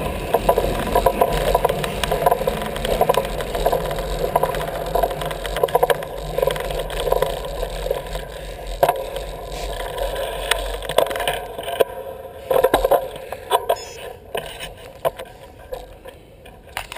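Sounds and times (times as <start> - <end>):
wind rumble on microphone: 0.0 - 11.6
bicycle tyre noise: 0.0 - 16.9
bike rattles and knocks: 0.0 - 16.9.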